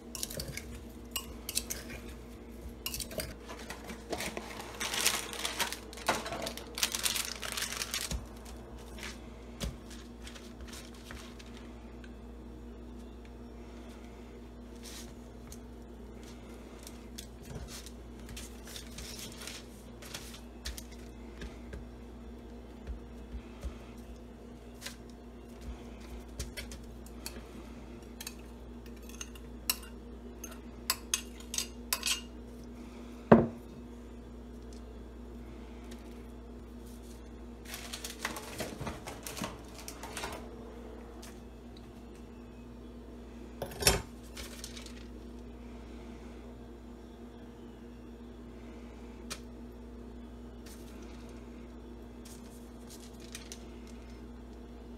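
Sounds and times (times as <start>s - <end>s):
steady low hum: 0.0s - 54.9s
paper crinkling and rustling: 3.4s - 11.8s, 16.2s - 21.2s, 36.8s - 40.5s, 44.2s - 45.3s, 52.2s - 54.2s.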